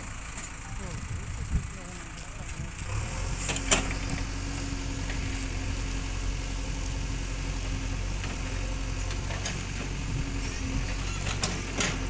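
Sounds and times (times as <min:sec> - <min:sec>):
diesel engine running: 0:00.0 - 0:12.0
backhoe arm digging: 0:02.9 - 0:06.1, 0:08.0 - 0:12.0.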